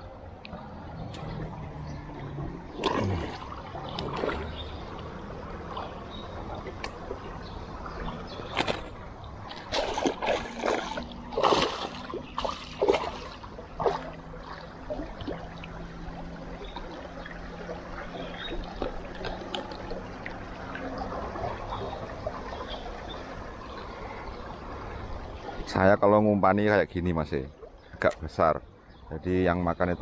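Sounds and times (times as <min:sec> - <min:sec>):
river water flowing: 0:00.0 - 0:29.2
sharp knocks or splashes: 0:01.1 - 0:06.0, 0:08.4 - 0:15.4.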